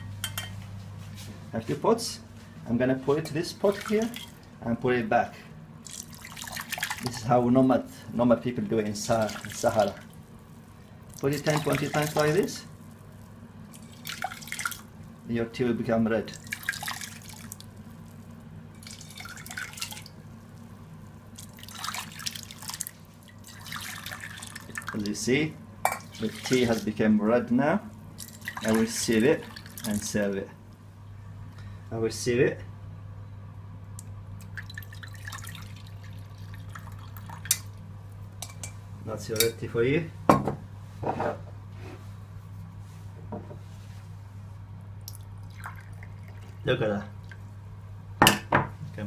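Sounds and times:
steady low hum: 0:00.0 - 0:49.0
tea pouring into metal pot: 0:03.6 - 0:04.4, 0:05.8 - 0:07.4, 0:08.6 - 0:15.1, 0:16.2 - 0:25.3, 0:25.9 - 0:27.1, 0:28.1 - 0:30.3, 0:34.4 - 0:37.8, 0:45.1 - 0:46.8.

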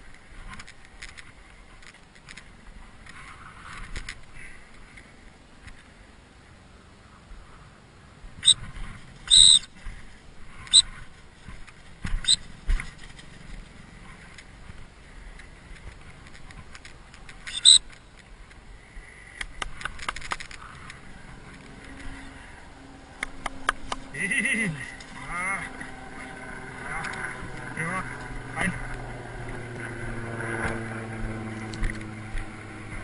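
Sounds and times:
dog whistle blasts: 0:09.3 - 0:09.7, 0:17.5 - 0:17.9
sharp clicks: 0:19.3 - 0:22.1, 0:23.2 - 0:24.1.

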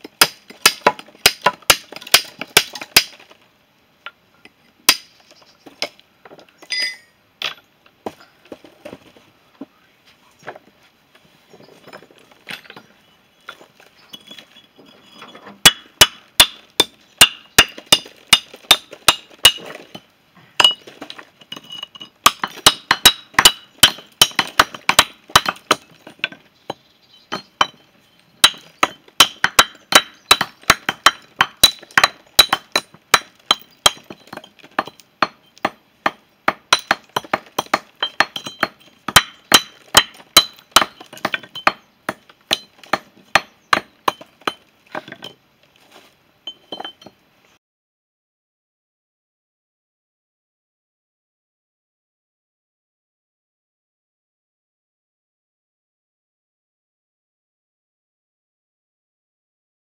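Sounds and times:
hammer striking stone: 0:00.2 - 0:03.2, 0:04.9 - 0:05.1, 0:15.6 - 0:20.0, 0:20.6 - 0:27.8, 0:28.4 - 0:45.4.

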